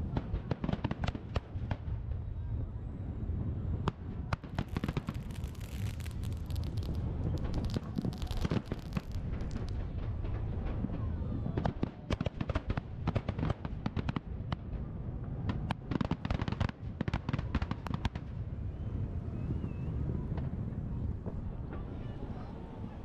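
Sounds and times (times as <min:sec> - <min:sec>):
fireworks bangs and crackles: 0:00.0 - 0:23.0
low rumble: 0:04.6 - 0:11.6.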